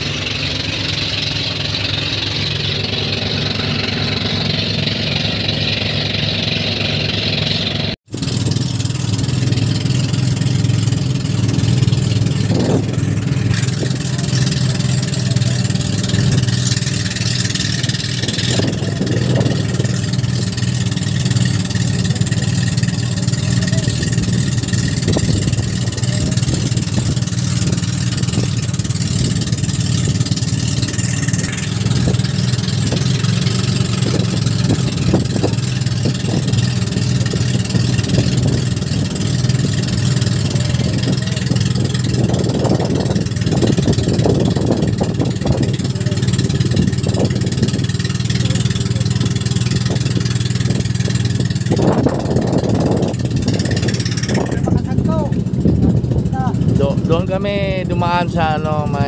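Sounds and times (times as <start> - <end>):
water rushing: 0.0 - 55.7
boat engine droning: 0.0 - 59.0
wind: 0.0 - 59.0.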